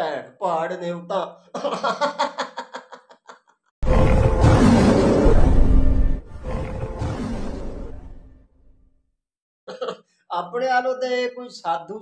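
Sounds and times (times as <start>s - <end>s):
beast roar: 3.8s - 8.2s
dramatic music: 3.8s - 8.4s.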